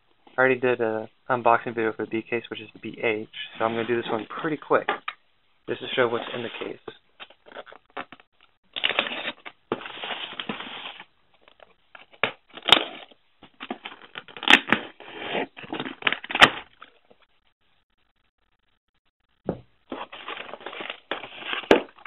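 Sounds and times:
tape tearing: 0:12.1 - 0:16.7, 0:20.0 - 0:22.0.

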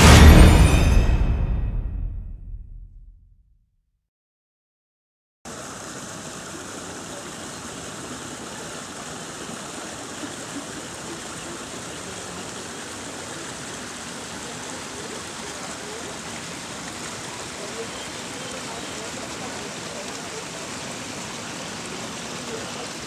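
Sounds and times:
stream running over rocks: 0:05.5 - 0:23.0.

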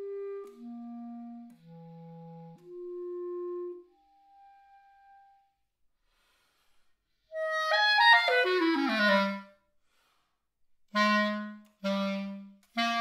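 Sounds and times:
solo clarinet: 0:00.0 - 0:05.6, 0:07.3 - 0:09.6, 0:10.9 - 0:13.0.

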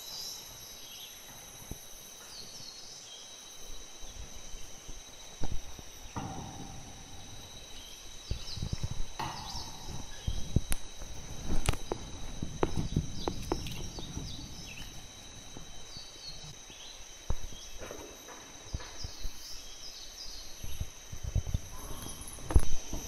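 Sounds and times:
high-pitched insect drone: 0:00.0 - 0:23.0
sharp knocks: 0:05.3 - 0:16.6.

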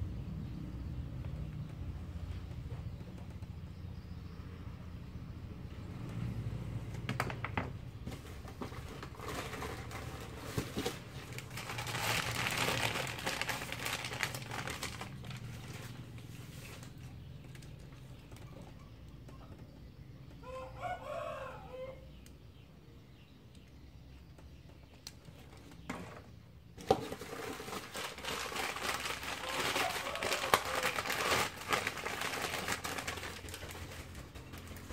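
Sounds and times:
rustling: 0:08.0 - 0:18.4, 0:26.8 - 0:34.9
rooster crowing: 0:20.4 - 0:22.1, 0:29.3 - 0:31.4.

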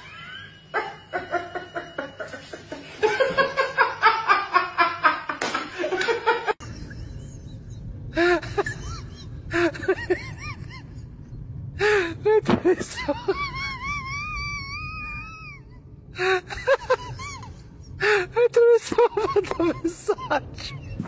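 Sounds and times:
man and woman laughing: 0:00.0 - 0:11.2, 0:16.2 - 0:21.0
low hum: 0:00.0 - 0:21.0.

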